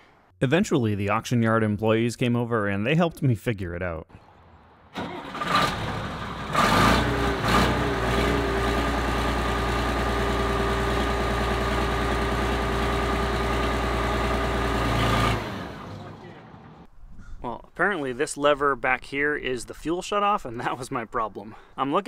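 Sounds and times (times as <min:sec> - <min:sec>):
diesel engine starting and idling: 0:04.9 - 0:16.9.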